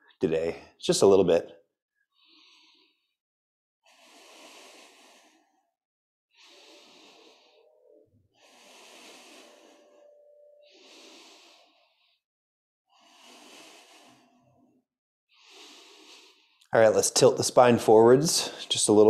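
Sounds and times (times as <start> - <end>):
person breathing deeply: 2.2 - 3.2, 3.8 - 12.3, 12.9 - 16.7.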